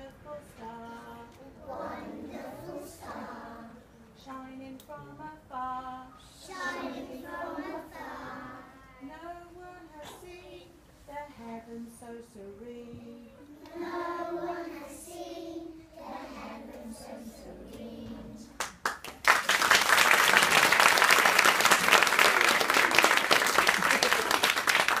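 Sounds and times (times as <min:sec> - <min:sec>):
children singing: 0:01.5 - 0:03.8, 0:06.3 - 0:08.8, 0:13.4 - 0:18.6
applause: 0:18.6 - 0:25.0.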